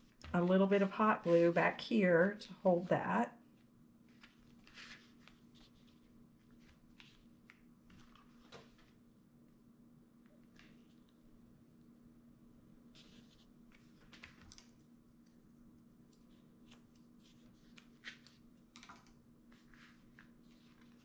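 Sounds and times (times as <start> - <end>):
hands working twine on paper: 0.0 - 2.9
low steady hum: 0.0 - 21.0.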